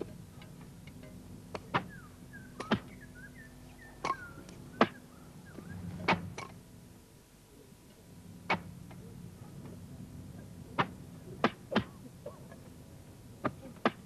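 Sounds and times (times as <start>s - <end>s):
chirping bird calls: 1.7s - 6.0s.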